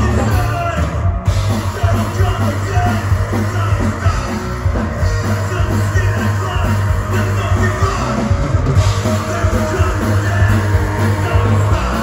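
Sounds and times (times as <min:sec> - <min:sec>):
bass guitar: 0:00.0 - 0:12.0
drum kit: 0:00.0 - 0:12.0
electric guitar: 0:00.0 - 0:12.0
person singing: 0:00.0 - 0:12.0.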